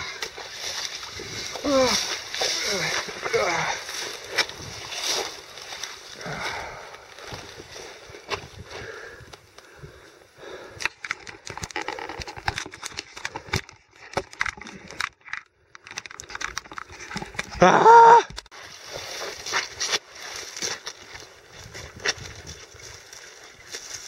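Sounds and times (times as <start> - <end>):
footsteps through dry grass: 0.0 - 10.2, 18.5 - 24.0
man yelling: 17.6 - 18.3.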